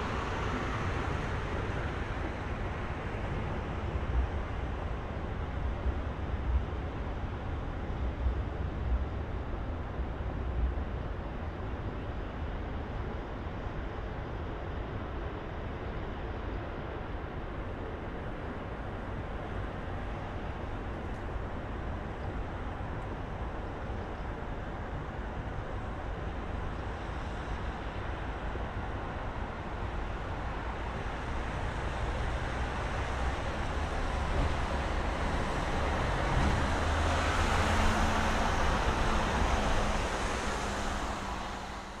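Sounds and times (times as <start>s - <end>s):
low rumble of passing cars: 0.0s - 42.0s
vehicle engine hum passing: 31.2s - 42.0s.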